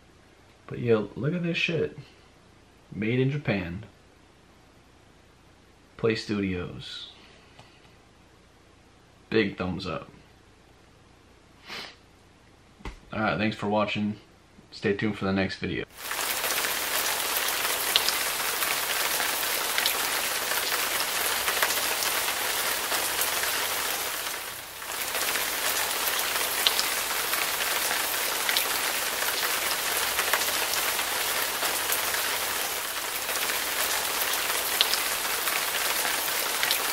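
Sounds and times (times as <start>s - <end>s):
rain falling: 15.9s - 36.9s
raindrop ticks: 16.0s - 36.9s.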